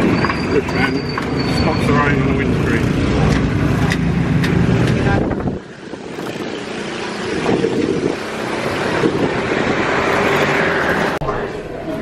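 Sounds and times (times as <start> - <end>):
wind noise on microphone: 4.1 - 11.2.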